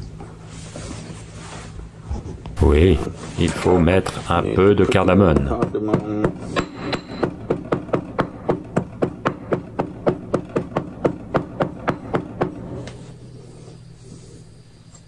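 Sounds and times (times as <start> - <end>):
pestle pounding in stone mortar: 4.9 - 12.7.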